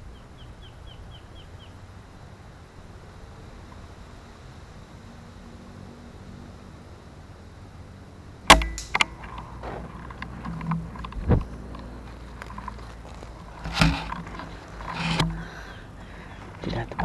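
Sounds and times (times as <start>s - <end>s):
rifle click: 8.5s - 9.1s
air rifle shot crack: 8.5s - 9.3s
rifle handling knocks and rustling: 8.5s - 11.9s, 12.5s - 15.4s.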